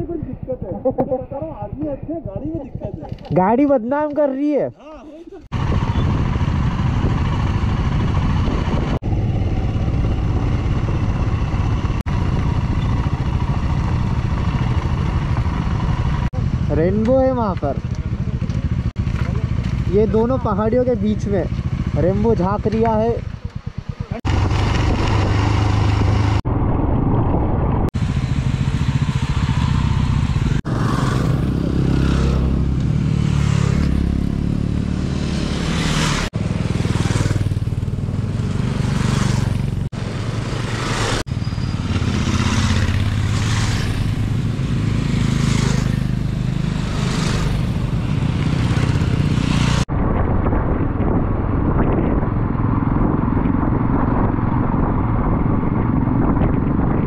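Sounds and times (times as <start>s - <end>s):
motorcycle engine running: 0.0s - 3.3s, 5.5s - 26.8s, 27.9s - 49.9s
wind noise: 5.5s - 16.2s, 22.3s - 28.4s, 37.7s - 57.0s.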